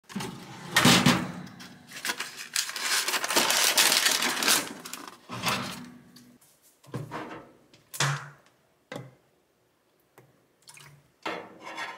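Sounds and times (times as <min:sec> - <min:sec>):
paper wrapper crinkling: 0:01.6 - 0:05.3.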